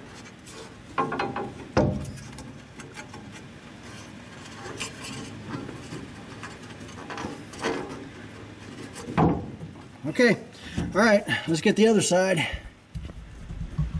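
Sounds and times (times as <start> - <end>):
metal bar rubbing and scraping: 0.0 - 9.2.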